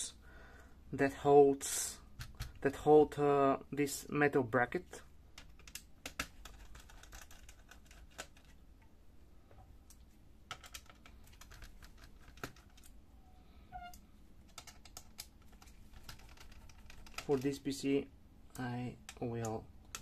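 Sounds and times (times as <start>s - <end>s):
faint plastic and metal clicks: 18.5s - 20.0s.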